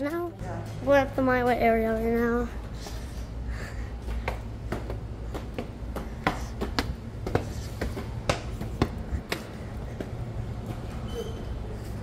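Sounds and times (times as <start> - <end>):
low steady hum: 0.0 - 12.0
footsteps on tiled floor: 1.3 - 12.0
footsteps on concrete stairs: 4.0 - 10.9.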